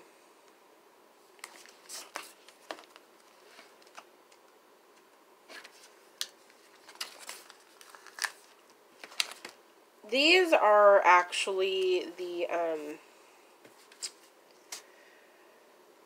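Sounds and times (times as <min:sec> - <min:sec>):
sticker paper clicks and rustles: 0:01.4 - 0:04.5, 0:05.5 - 0:09.6.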